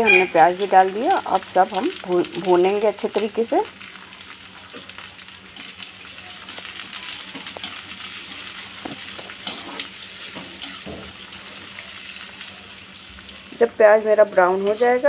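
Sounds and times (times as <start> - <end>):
onions sizzling in hot oil: 0.0 - 15.0
spatula scraping metal pan: 9.4 - 10.9, 14.6 - 15.0.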